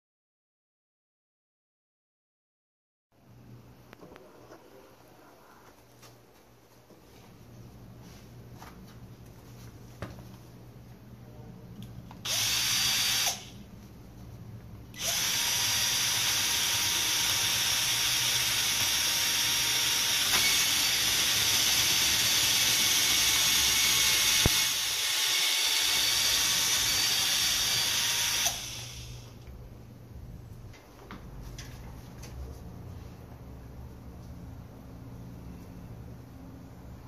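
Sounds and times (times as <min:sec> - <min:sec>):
cordless drill whining: 0:12.2 - 0:13.5, 0:15.0 - 0:29.3.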